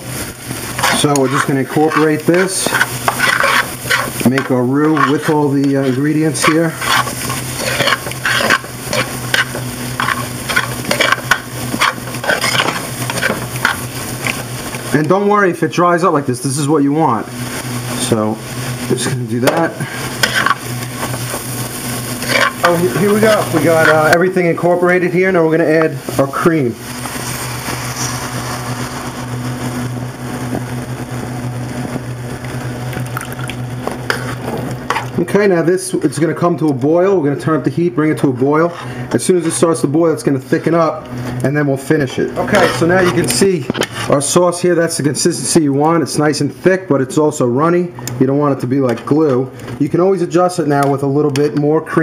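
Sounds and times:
light sizzle of frying: 0.0 - 52.0
steady low hum: 0.0 - 52.0
metal utensil scraping a pan: 0.7 - 14.4, 19.4 - 21.5, 22.2 - 24.4, 34.0 - 35.2, 42.4 - 44.1.

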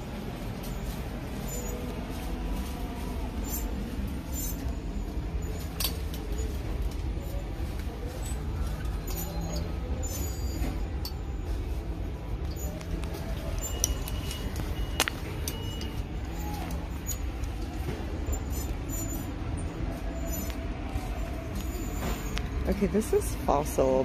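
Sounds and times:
bags clicking on metal hooks: 0.0 - 23.2
faint distant voices: 0.0 - 24.0
store background hum: 0.0 - 24.0.

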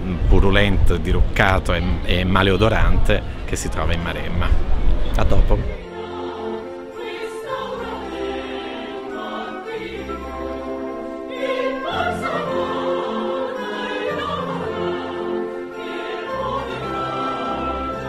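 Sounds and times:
opera singing voices: 5.6 - 18.0
orchestral opera music: 5.7 - 18.0.

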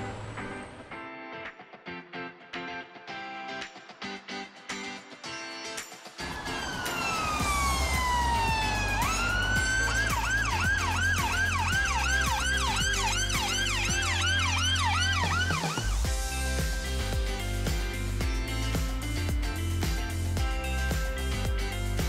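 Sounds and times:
siren wailing and yelping: 6.2 - 16.1
low bass tones: 7.1 - 22.0.

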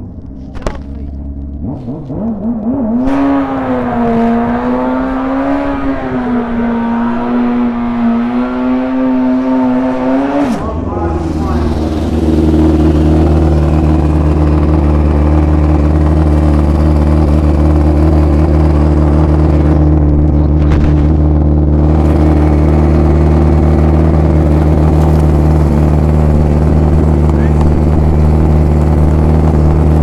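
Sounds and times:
motorcycle engine idling loudly: 10.6 - 30.0.

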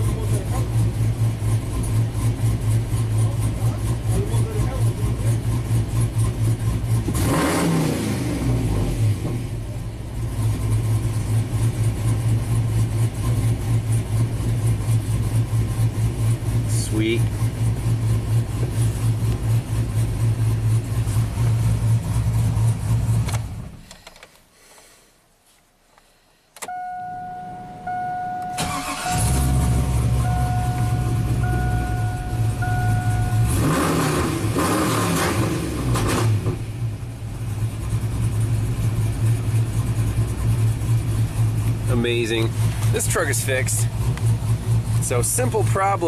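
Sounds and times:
truck engine idling: 0.0 - 7.1, 9.6 - 23.8, 26.7 - 34.6, 36.8 - 46.0
engine cranking and revving: 0.0 - 23.9, 27.8 - 46.0
dashboard chime beeps: 26.7 - 34.2.

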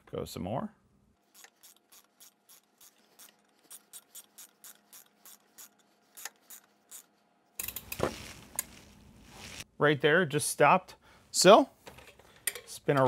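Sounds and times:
ratcheting wrench clicking: 7.6 - 8.0.

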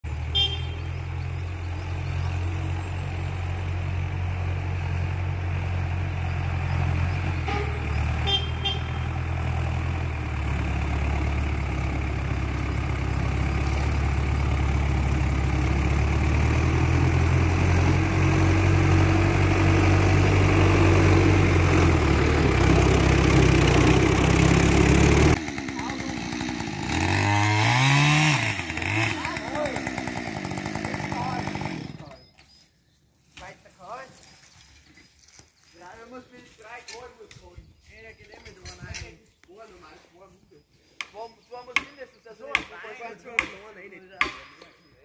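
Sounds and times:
tractor diesel engine running: 0.0 - 32.2.

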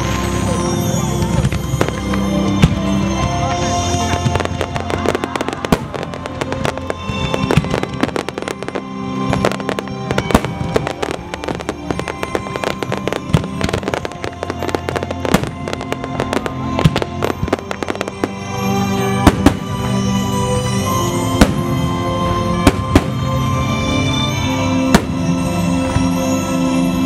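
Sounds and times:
fireworks bangs and crackles: 0.0 - 27.0
music: 0.0 - 27.0.

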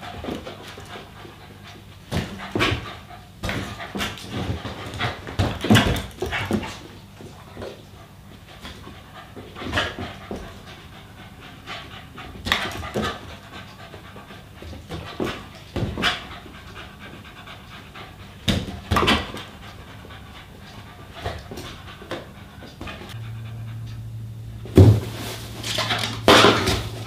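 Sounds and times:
small dog panting: 7.3 - 24.1.

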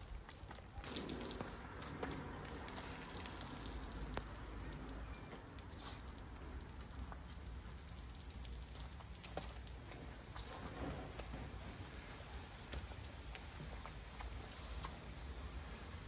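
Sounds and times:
suds fizzing: 0.7 - 13.1.

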